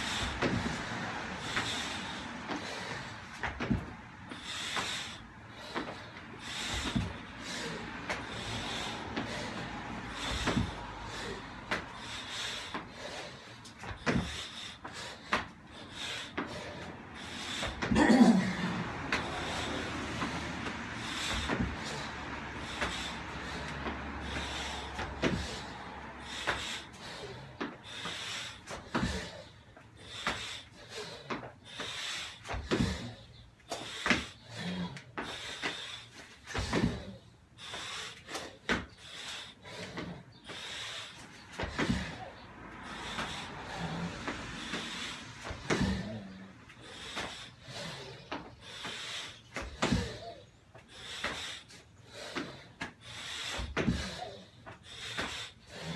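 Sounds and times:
heavy breathing: 0:00.0 - 0:55.9
thuds on rubber gym flooring: 0:03.5 - 0:04.0, 0:20.2 - 0:22.0, 0:32.5 - 0:33.2, 0:36.6 - 0:37.2, 0:41.6 - 0:42.2, 0:53.6 - 0:54.2.

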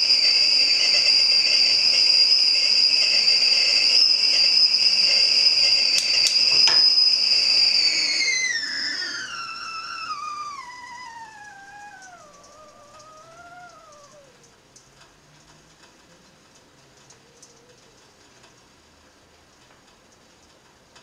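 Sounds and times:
kettle whistling: 0:00.0 - 0:14.6
water boiling: 0:00.0 - 0:21.0
sharp clicks: 0:06.0 - 0:07.0.

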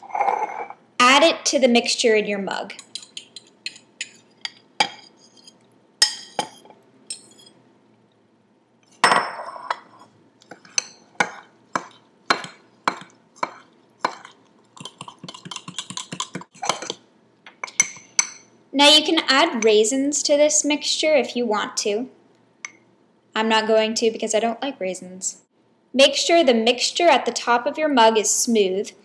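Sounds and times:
spoon stirring batter in mug: 0:02.7 - 0:07.6, 0:09.8 - 0:17.0.

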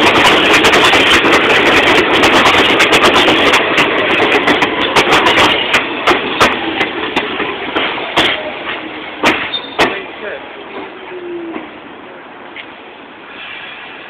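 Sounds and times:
wheels clacking over rail joints: 0:00.0 - 0:12.8
subway train wheel rumble: 0:00.0 - 0:14.0.

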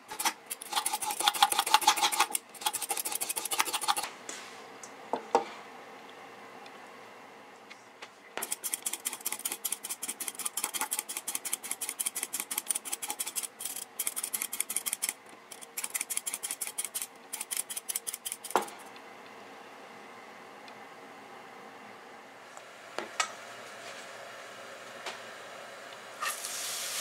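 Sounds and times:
knife scraping carrot: 0:00.1 - 0:04.1, 0:08.4 - 0:18.8.

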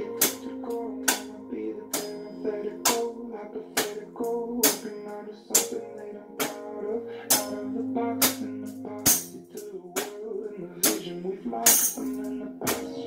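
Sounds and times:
plucked string notes over a beat: 0:00.0 - 0:03.2, 0:03.8 - 0:13.0
sharp percussive hit: 0:09.0 - 0:09.4, 0:11.7 - 0:12.1.

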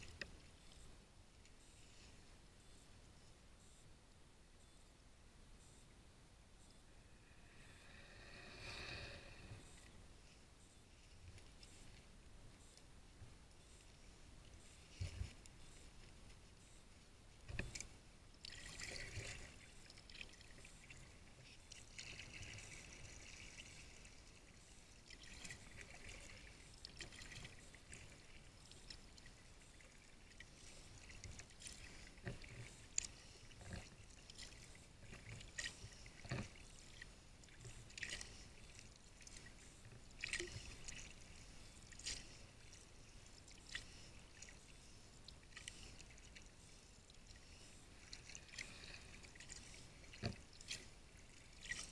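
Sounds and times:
kayak paddle strokes: 0:14.8 - 0:51.9.

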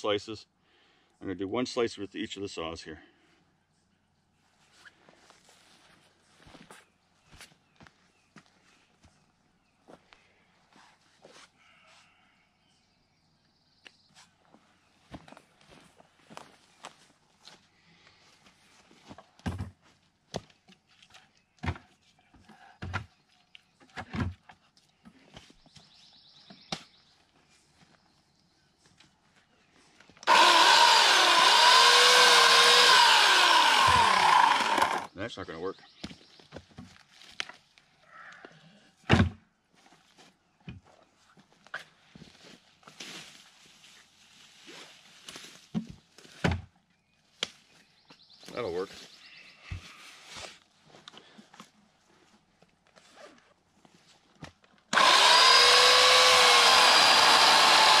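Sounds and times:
footsteps on grass: 0:04.5 - 0:09.2, 0:14.2 - 0:20.0, 0:41.4 - 0:45.7.

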